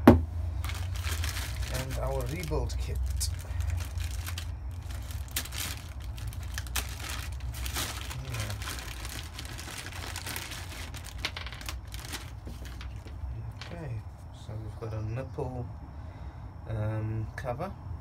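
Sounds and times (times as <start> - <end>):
plastic packaging crinkling: 0.6 - 13.7.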